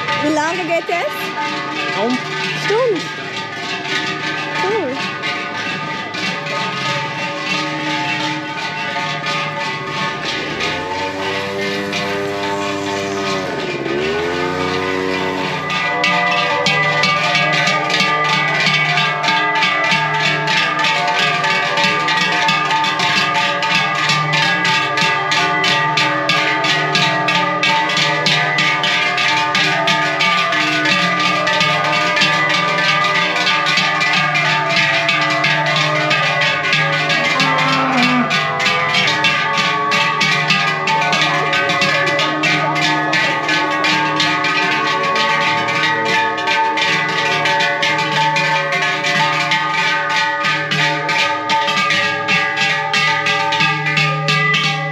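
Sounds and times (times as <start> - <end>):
cowbells clanging: 0.0 - 54.9
cow lowing: 37.0 - 38.5.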